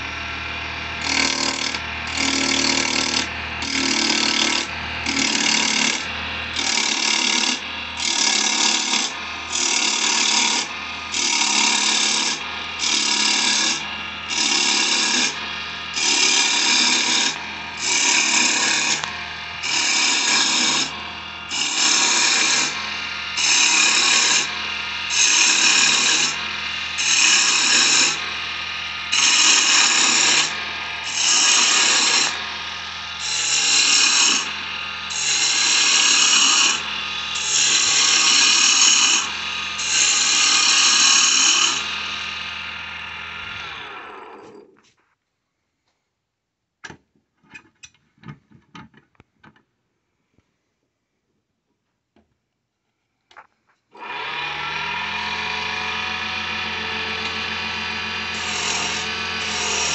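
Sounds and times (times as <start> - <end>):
wood lathe humming: 0.0 - 44.7, 54.0 - 59.9
turning tool cutting wood: 0.0 - 44.8, 53.9 - 59.9.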